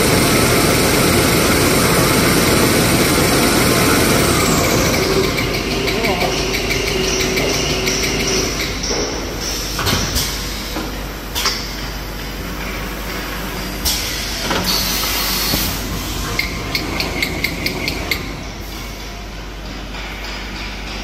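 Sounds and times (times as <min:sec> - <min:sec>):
rewinding machine running: 0:00.0 - 0:09.7, 0:14.8 - 0:19.6
machine hissing: 0:13.7 - 0:19.2.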